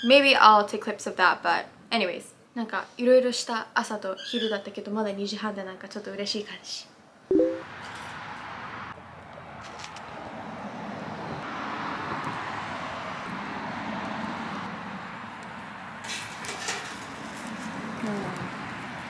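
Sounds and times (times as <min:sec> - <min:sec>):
wire grill basket clinking: 0:16.1 - 0:17.6.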